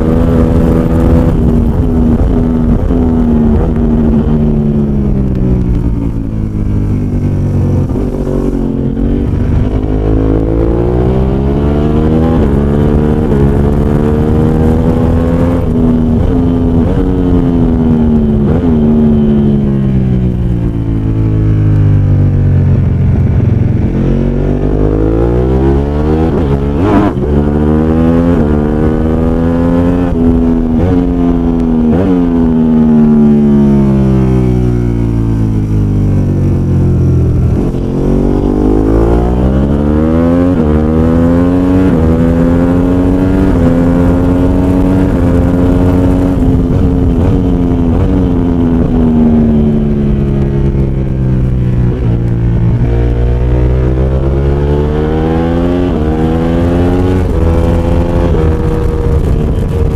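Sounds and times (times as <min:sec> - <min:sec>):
racing motorcycle engine: 0:00.0 - 0:59.9.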